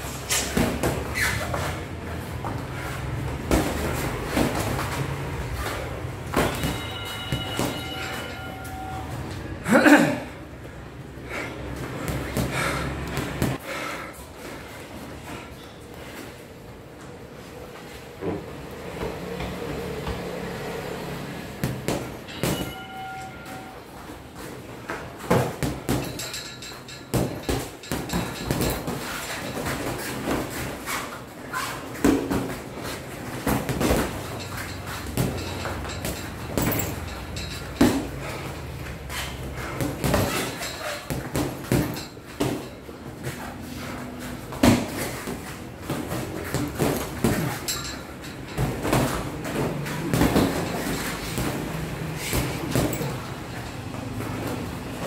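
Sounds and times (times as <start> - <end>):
boxing gloves thudding: 3.3 - 8.3, 39.6 - 43.4, 44.5 - 47.6, 48.6 - 53.3.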